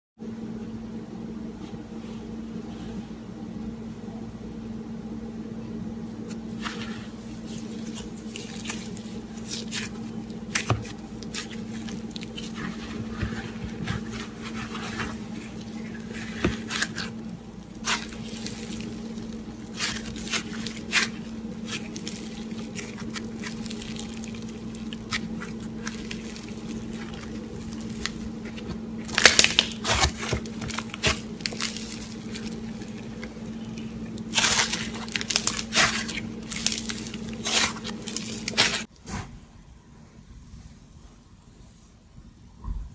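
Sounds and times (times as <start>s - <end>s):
low hum: 0.2s - 38.9s
slime crackling and squishing: 6.6s - 38.9s.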